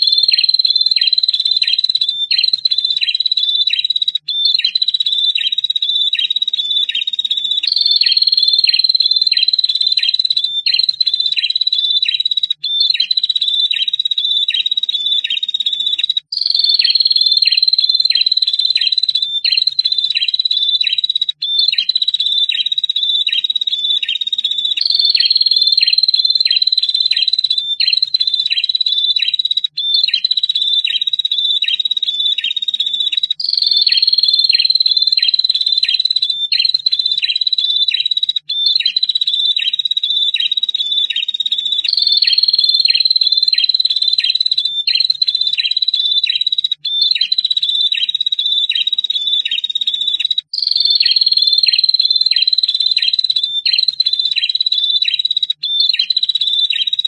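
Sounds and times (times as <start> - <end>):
bird singing trilling song: 0.0 - 57.0.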